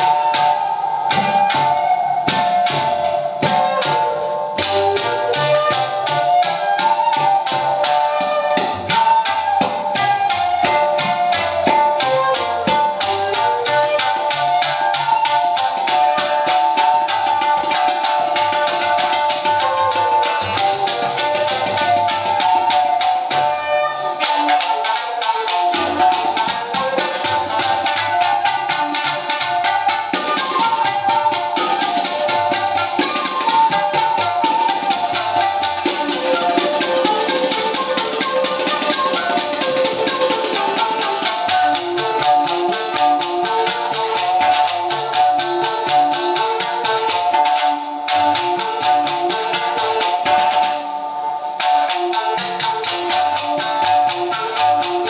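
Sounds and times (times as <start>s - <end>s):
plucked shamisen notes: 0.0s - 55.0s
shakuhachi flute melody: 0.0s - 55.0s
tabla strokes: 0.0s - 55.0s.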